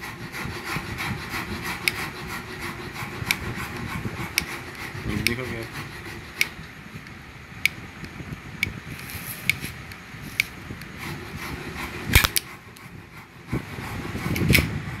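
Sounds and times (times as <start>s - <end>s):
metal sliding on metal: 0.0s - 6.7s.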